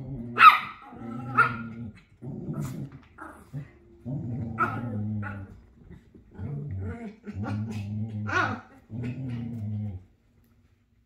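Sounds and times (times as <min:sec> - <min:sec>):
small dogs growling: 0:00.0 - 0:10.1
dog barking: 0:00.4 - 0:00.8.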